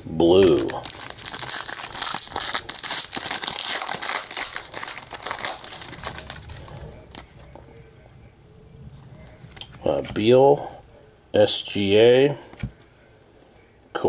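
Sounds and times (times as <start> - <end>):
wrapper crinkling and tearing: 0.4 - 7.3.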